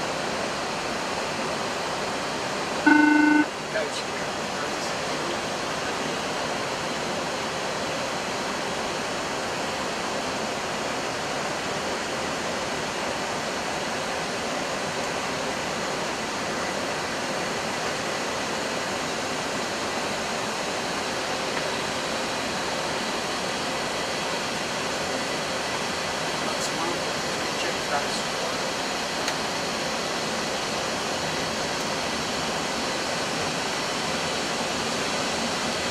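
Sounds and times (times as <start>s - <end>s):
faint steady hum: 2.8s - 3.6s
ventilation fans: 3.5s - 35.9s.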